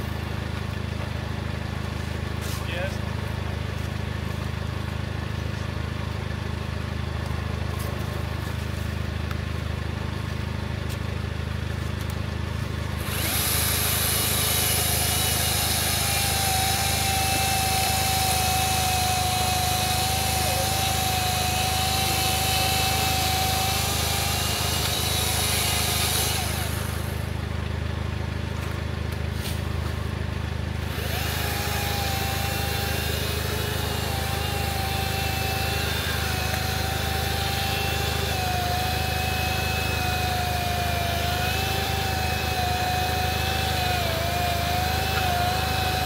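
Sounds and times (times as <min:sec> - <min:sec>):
chainsaw cutting log: 0:12.9 - 0:27.4, 0:30.8 - 0:46.0.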